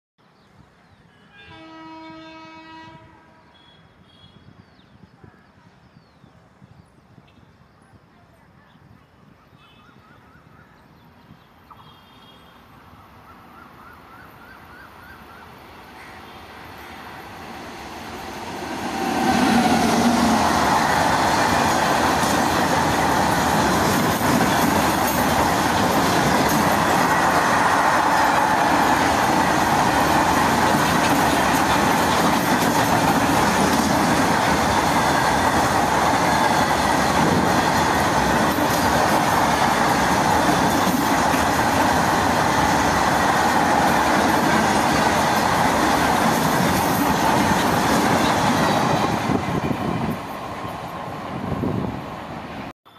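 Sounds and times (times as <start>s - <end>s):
freight train rumbling past: 15.6s - 52.7s.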